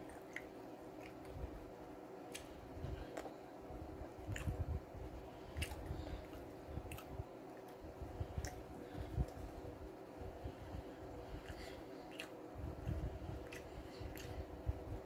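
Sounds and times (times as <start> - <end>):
wet mouth clicks: 0.0 - 1.3, 4.3 - 4.6, 11.4 - 12.4
chewing noodles: 11.3 - 14.5.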